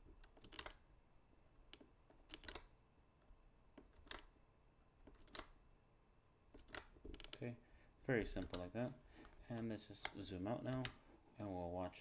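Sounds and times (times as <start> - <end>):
keyboard and mouse clicks: 0.0 - 0.8, 1.6 - 2.8, 3.7 - 4.4, 5.0 - 5.6, 6.5 - 7.4, 8.3 - 11.0.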